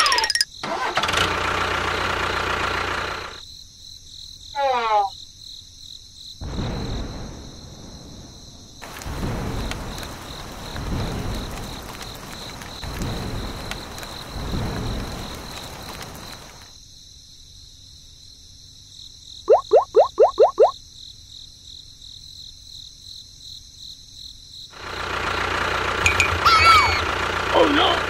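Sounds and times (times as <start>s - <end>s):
rain falling: 6.4s - 16.8s, 24.8s - 28.0s.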